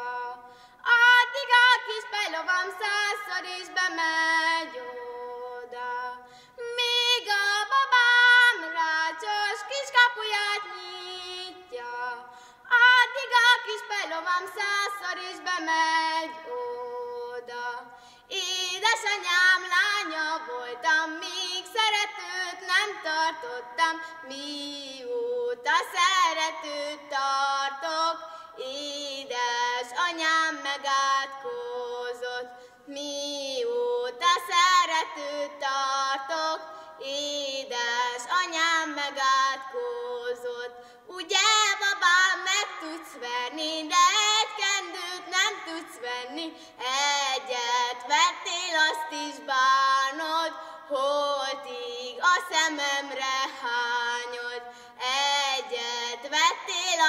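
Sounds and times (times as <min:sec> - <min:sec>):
girl breathing: 0:00.5 - 0:00.8, 0:06.2 - 0:06.6, 0:12.3 - 0:12.7, 0:18.0 - 0:18.3, 0:28.3 - 0:28.6, 0:54.7 - 0:55.0.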